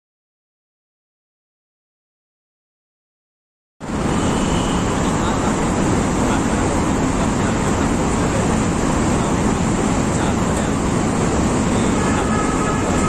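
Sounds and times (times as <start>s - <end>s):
road noise from moving vehicle: 3.8s - 13.0s.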